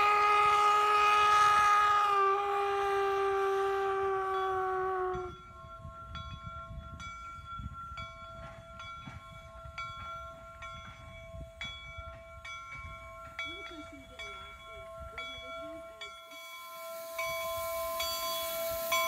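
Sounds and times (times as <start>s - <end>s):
steam locomotive whistle: 0.0s - 5.6s, 15.7s - 19.0s
locomotive bell ringing: 0.0s - 19.0s.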